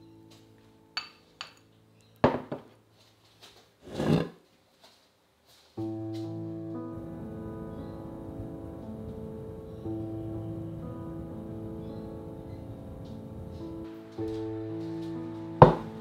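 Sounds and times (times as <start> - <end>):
background music: 0.0 - 3.2, 5.8 - 16.0
kitchenware clicks and knocks: 2.2 - 2.7.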